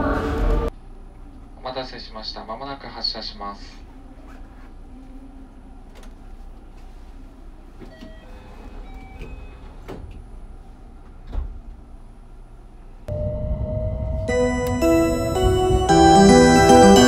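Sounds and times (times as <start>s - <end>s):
train low rumble: 0.0s - 17.0s
rising tone: 13.1s - 17.0s.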